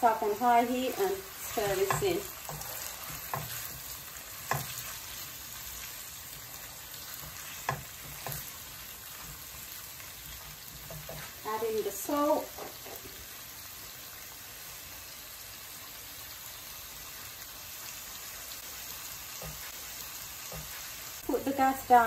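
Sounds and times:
onions sizzling in hot oil: 0.0 - 22.0
wooden spoon knocking a pan: 1.6 - 4.9, 7.2 - 8.6.

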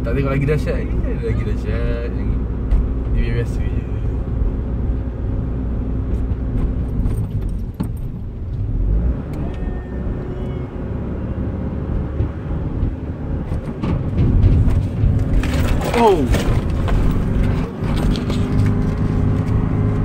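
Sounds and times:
engine and road noise: 0.0 - 20.0
light clicks and rattles: 13.5 - 19.6.

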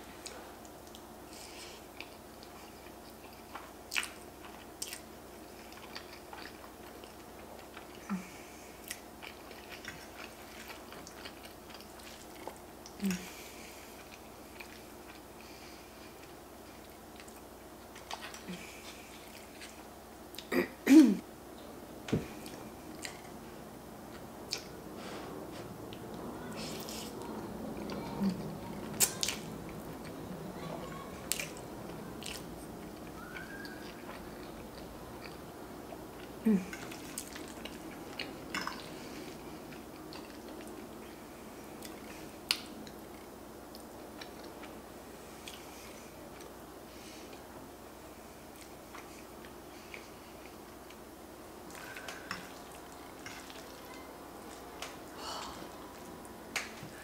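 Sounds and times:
chewing and slurping pasta: 51.6 - 54.7.

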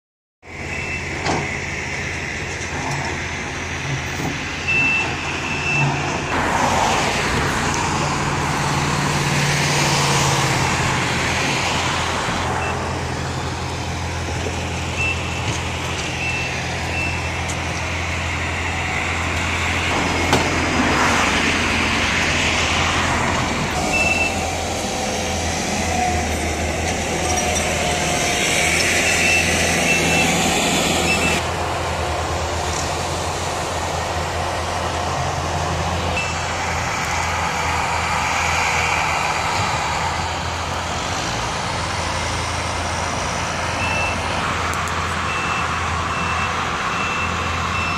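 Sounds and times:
construction machinery engine drone: 0.4 - 47.9.

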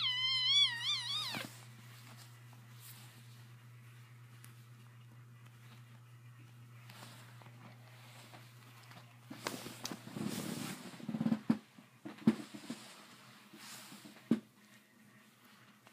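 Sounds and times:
steady low hum: 0.0 - 15.9
clothing rustling and scraping: 6.8 - 11.4.

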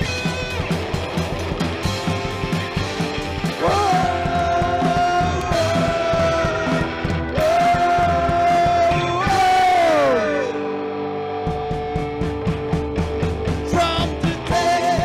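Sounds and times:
rockabilly band playing: 0.0 - 15.0
person singing long notes: 3.6 - 10.8, 13.7 - 15.0.

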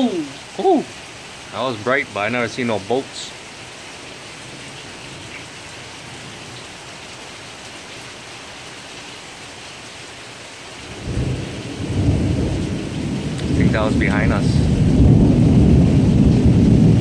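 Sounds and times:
steady rain: 0.0 - 17.0
thunder rumble: 10.9 - 17.0.

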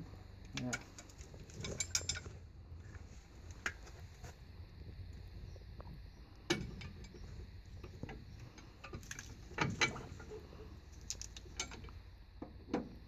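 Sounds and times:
low steady hum: 0.0 - 13.0
metallic clicks and knocks: 0.5 - 2.4, 11.0 - 12.0.

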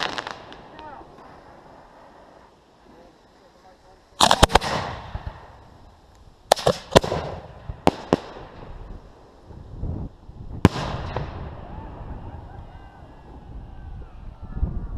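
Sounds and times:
fireworks bangs: 0.0 - 2.0, 4.2 - 5.8, 6.5 - 9.4, 10.5 - 13.1.

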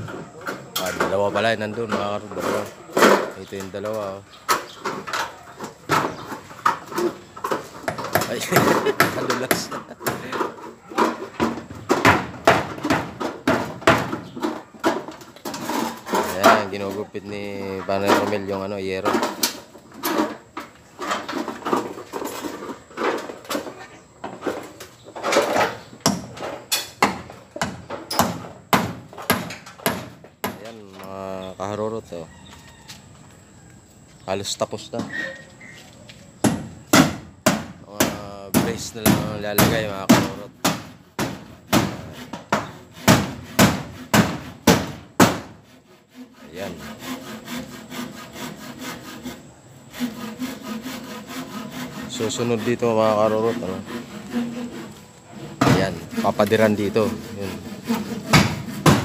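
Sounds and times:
hand saw cutting wood: 6.2 - 11.4, 12.0 - 23.7, 38.0 - 59.0
hammer knocking nails: 7.5 - 15.0, 27.0 - 30.7, 36.4 - 45.5, 57.9 - 59.0.

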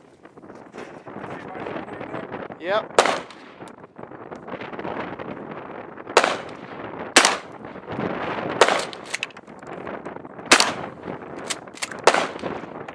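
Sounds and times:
pistol shots with echo: 3.0 - 3.6, 6.2 - 7.6, 8.6 - 9.3, 10.5 - 12.8.

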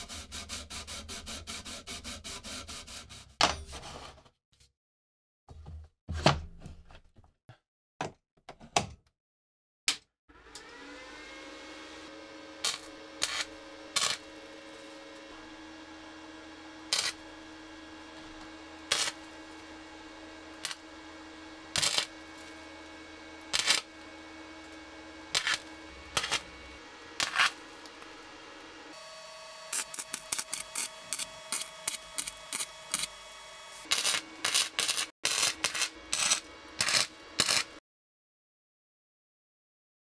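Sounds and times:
welder humming: 10.3 - 37.8
crackling welding arc: 12.6 - 14.9, 16.9 - 17.5, 18.9 - 19.6, 20.6 - 20.9, 21.7 - 22.9, 23.5 - 24.0, 25.3 - 26.5, 27.2 - 28.3, 29.7 - 37.8.

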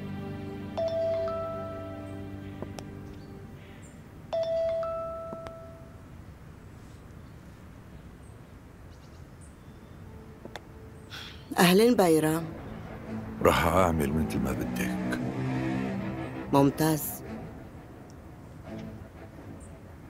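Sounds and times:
phone chime ringtone: 0.8 - 1.9, 4.3 - 5.9.

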